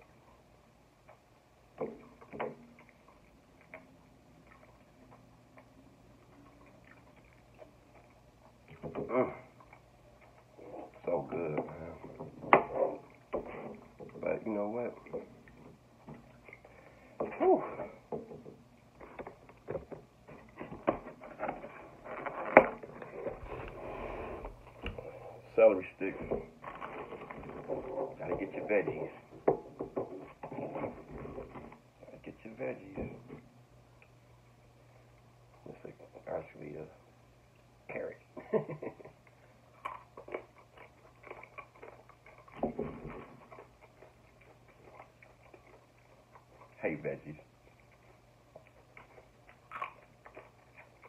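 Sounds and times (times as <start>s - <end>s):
wet chewing: 1.9s - 14.2s, 39.2s - 46.8s, 47.4s - 51.0s.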